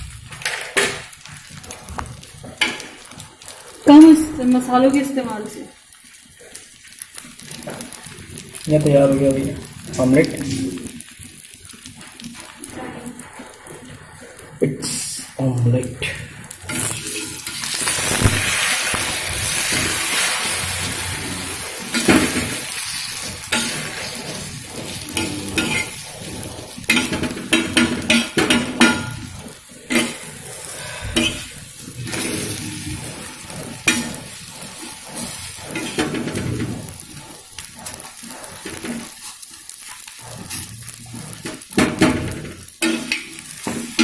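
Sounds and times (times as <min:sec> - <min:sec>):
omelette sizzling on a pan: 0:00.0 - 0:44.0
spoon scraping and clinking pan: 0:21.9 - 0:26.1, 0:26.7 - 0:32.2, 0:35.2 - 0:37.1.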